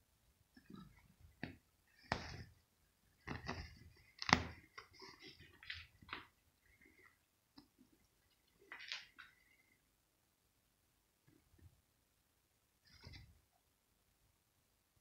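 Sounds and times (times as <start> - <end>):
cat scratching fabric bed: 1.9 - 2.6, 3.2 - 6.1.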